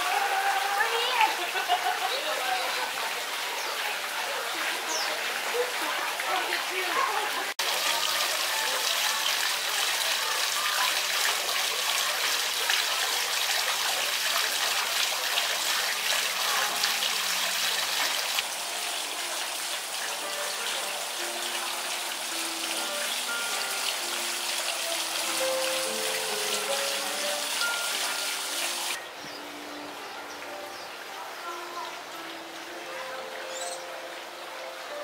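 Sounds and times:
fountain water splashing: 0.0s - 35.0s.

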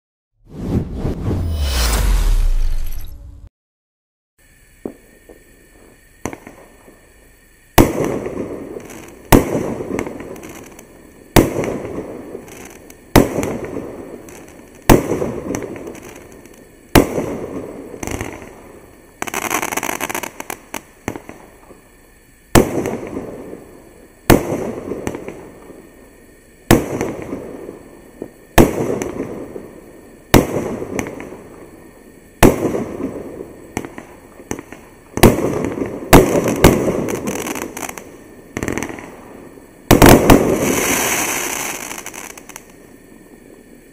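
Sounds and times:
small firework pops: 4.8s - 7.0s, 7.8s - 17.4s, 18.0s - 18.6s, 19.2s - 21.8s, 24.3s - 25.8s, 26.7s - 29.6s, 30.3s - 31.7s, 32.4s - 39.2s, 39.9s - 42.8s
loud firework bangs: 7.8s - 10.3s, 33.8s - 38.0s, 39.9s - 42.6s.

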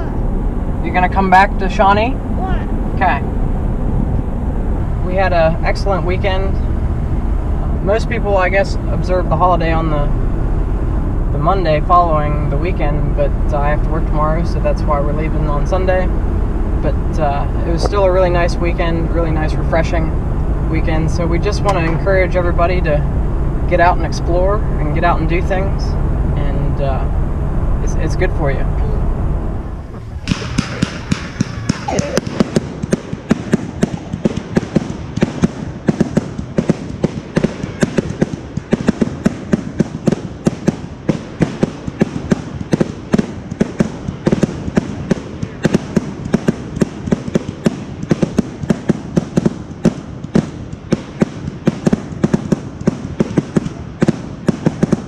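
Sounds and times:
fireworks bangs and crackles: 29.9s - 55.0s.

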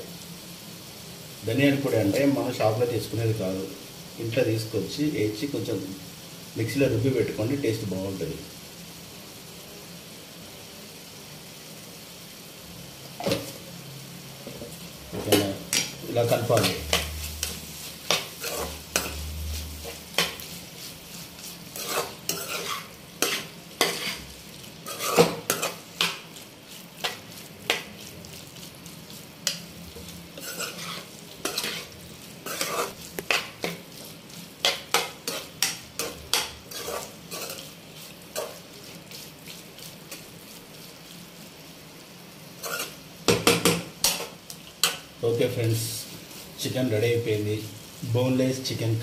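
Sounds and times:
food sizzling in pan: 0.0s - 49.0s
metal spatula scraping frying pan: 15.3s - 28.4s, 29.4s - 41.0s, 42.6s - 43.0s.

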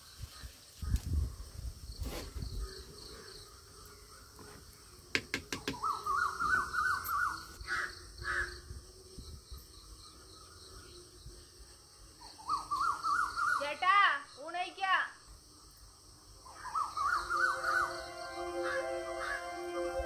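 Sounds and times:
sharp knocks: 5.1s - 5.8s
birds' rising calls: 5.5s - 8.7s, 16.4s - 20.0s
crows cawing: 16.6s - 19.5s.

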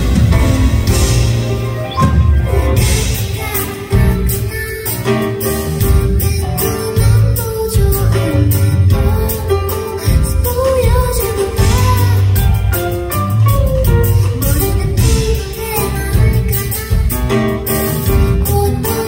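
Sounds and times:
bass and drums: 0.0s - 19.0s
grand piano: 0.0s - 19.0s
woman singing pop song: 2.8s - 13.2s, 13.8s - 19.0s.

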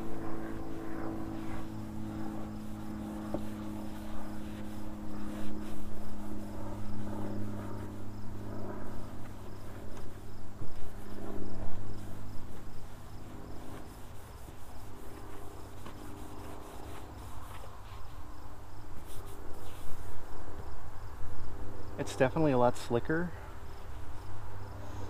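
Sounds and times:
low motor hum: 0.0s - 17.8s
crickets chirping: 0.0s - 25.0s
towel rubbing plastic panels: 1.4s - 7.0s.

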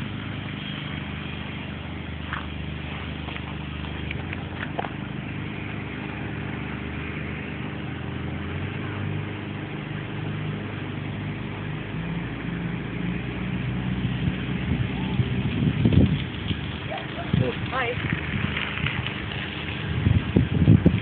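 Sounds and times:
vehicle engine running at low revs: 0.0s - 21.0s.

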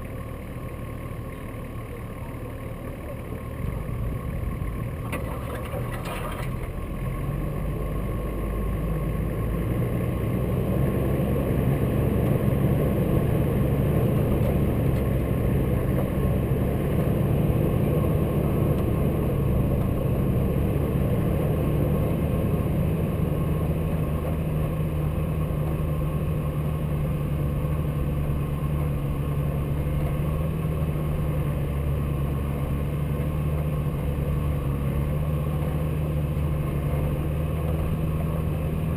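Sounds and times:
car engine running: 0.0s - 38.9s
tyres rumbling in snow: 2.8s - 38.9s.

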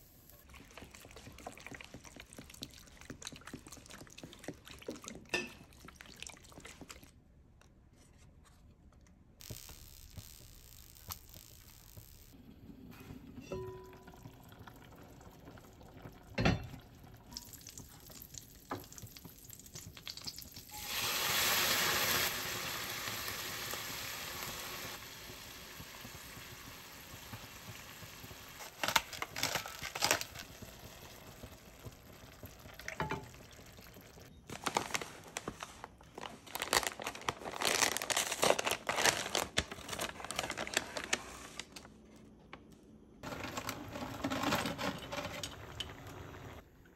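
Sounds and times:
ladle clinking: 13.4s - 14.4s
sauce sizzling in a hot pan: 19.9s - 28.7s
paper crinkling: 34.5s - 42.0s.

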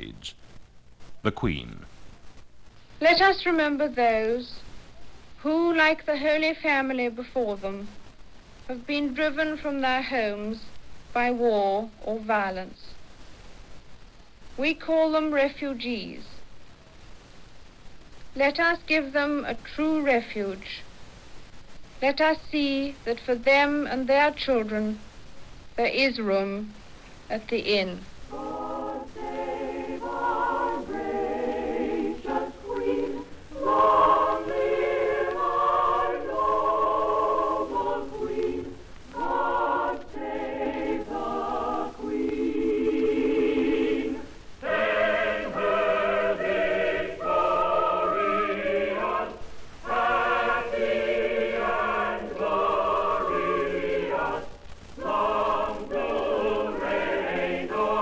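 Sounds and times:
choir singing held notes: 28.3s - 58.0s.

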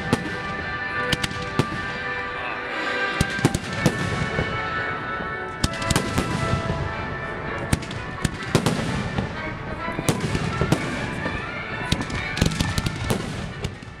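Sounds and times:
fireworks bangs and crackles: 0.0s - 14.0s.

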